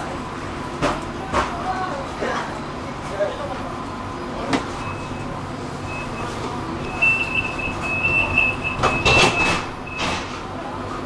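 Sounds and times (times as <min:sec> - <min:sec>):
tram humming: 0:00.0 - 0:11.0
high electronic warning beep: 0:04.8 - 0:10.2.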